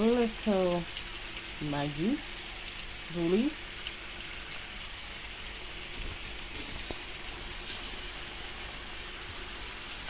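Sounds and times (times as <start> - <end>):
food sizzling in a frying pan: 0.0 - 10.0.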